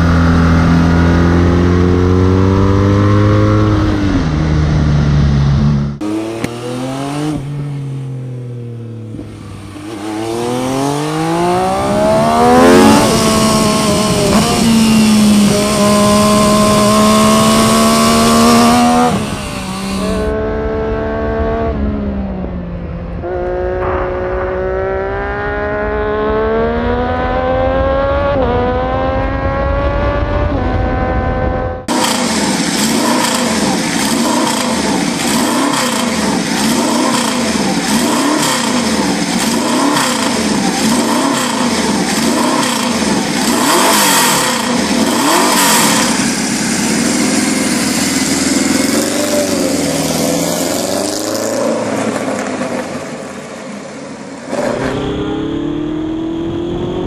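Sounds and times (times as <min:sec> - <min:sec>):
motorcycle engine revving: 0:00.0 - 0:57.0
wind noise: 0:09.1 - 0:35.2, 0:54.5 - 0:57.0
sport bike shifting gears: 0:09.5 - 0:20.3, 0:31.9 - 0:52.6.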